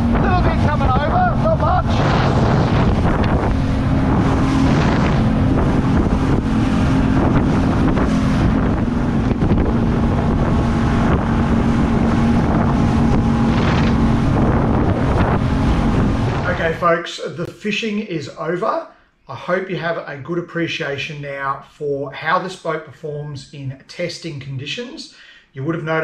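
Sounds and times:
outboard motor drone: 0.0 - 16.8
water splashing against hull: 0.0 - 16.8
wind buffeting microphone: 0.0 - 16.8.

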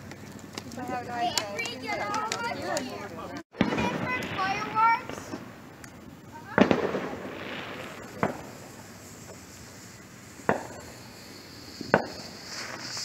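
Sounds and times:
fireworks bangs: 3.5 - 13.0.

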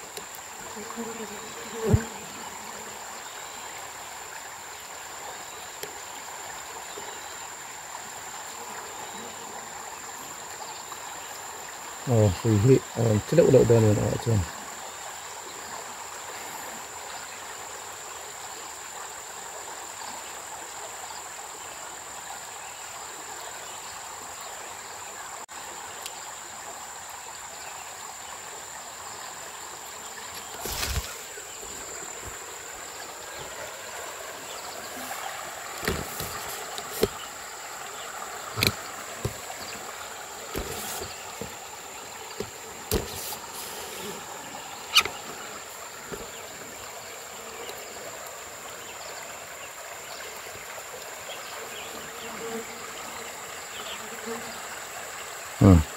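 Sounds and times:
river water flowing and lapping: 0.0 - 55.9
water splashes: 28.8 - 51.6.

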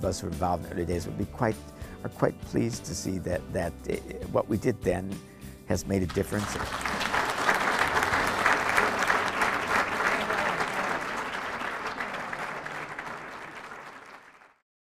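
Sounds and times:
audience applauding: 6.1 - 14.6.

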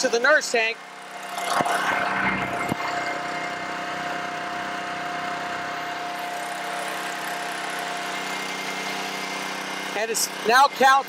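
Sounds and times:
small gas engine running: 0.0 - 11.0.

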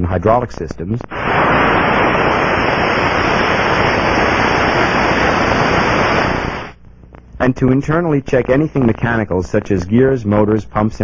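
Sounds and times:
rushing hiss of valve ultrasound: 1.1 - 6.8.

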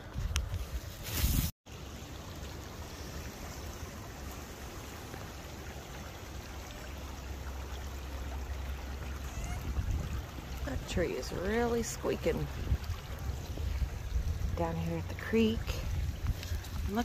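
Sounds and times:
wind rumble on microphone: 0.0 - 1.5, 9.1 - 17.0
creek water over stones: 0.0 - 17.0.

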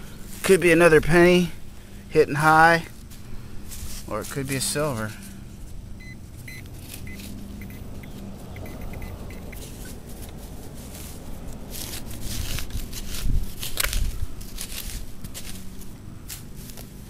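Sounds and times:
digging tool scraping soil: 9.4 - 17.0.

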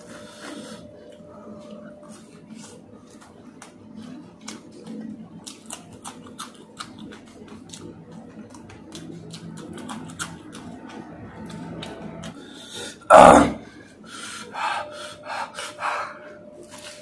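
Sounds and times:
man chewing crunchy food: 2.0 - 13.2.

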